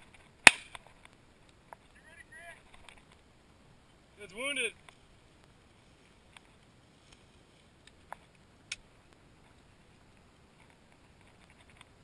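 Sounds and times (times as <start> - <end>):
faint clicks: 2.6 - 3.3, 7.8 - 12.0.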